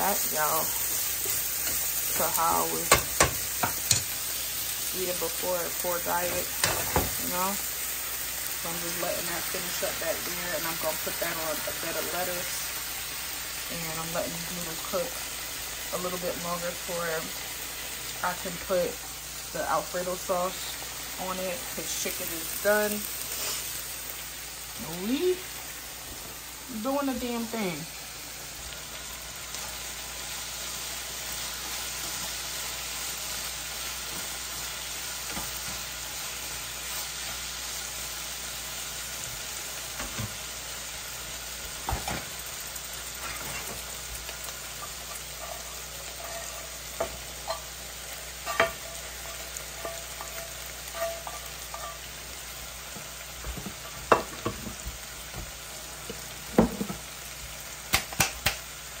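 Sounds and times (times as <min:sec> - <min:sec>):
food sizzling in a pan: 0:00.0 - 0:59.0
cooking utensil clinking and scraping: 0:43.2 - 0:43.9, 0:44.8 - 0:52.2.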